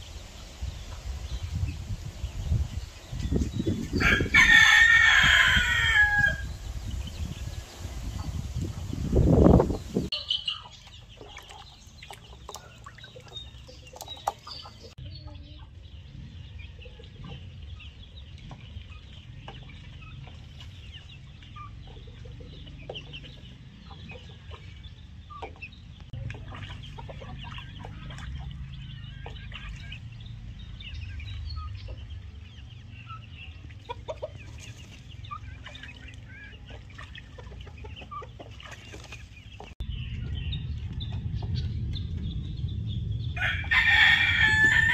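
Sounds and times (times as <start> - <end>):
chickens clucking: 3.0 - 42.0
low rumble: 39.8 - 44.9.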